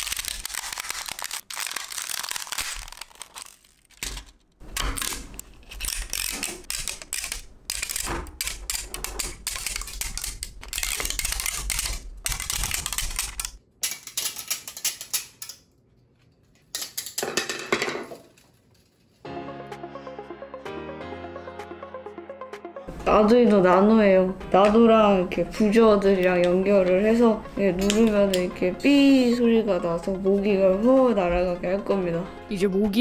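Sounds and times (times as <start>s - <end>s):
plastic cracking and snapping: 0.0s - 13.6s.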